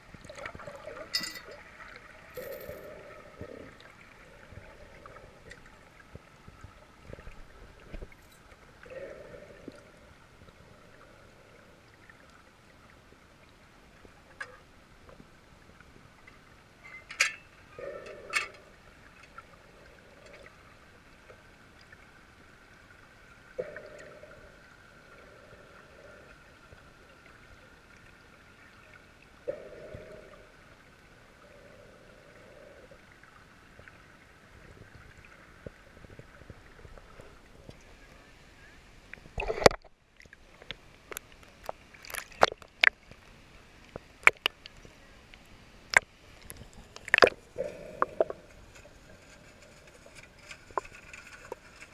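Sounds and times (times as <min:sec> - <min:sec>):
water slapping against camera: 0:44.2 - 0:44.9, 0:45.9 - 0:51.9.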